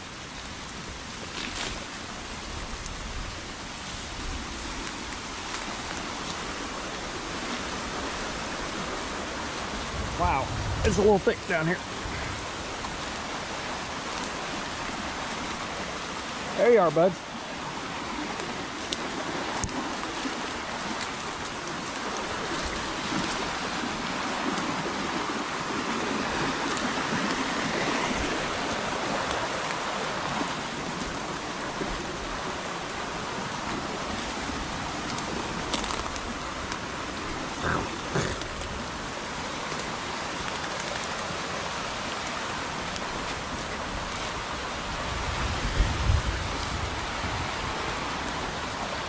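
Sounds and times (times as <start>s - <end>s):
heavy rain falling: 0.0s - 49.0s
rushing creek water: 0.0s - 49.0s.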